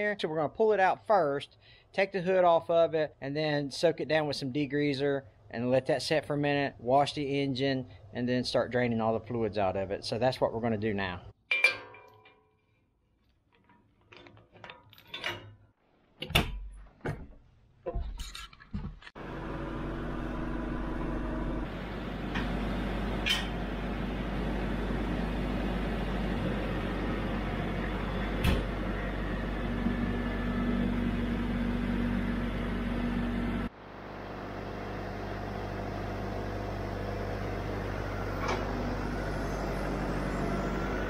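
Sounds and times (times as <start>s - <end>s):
tractor diesel engine running: 19.2s - 41.0s.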